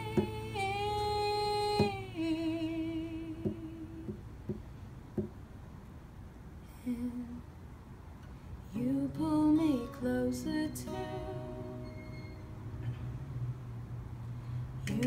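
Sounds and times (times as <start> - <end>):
acoustic guitar strums: 0.0 - 2.0, 9.6 - 13.4
woman singing: 0.0 - 4.2, 6.7 - 7.4, 8.7 - 11.8.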